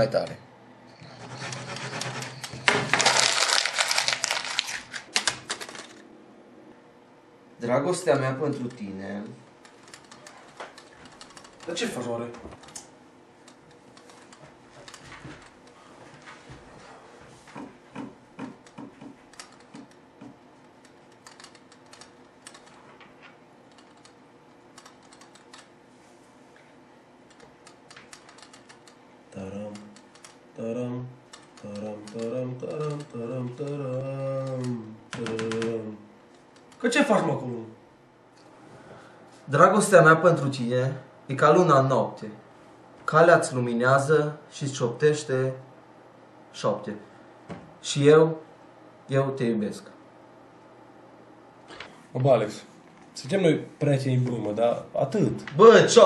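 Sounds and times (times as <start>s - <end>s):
paper rustling and crackling: 1.4s - 6.0s.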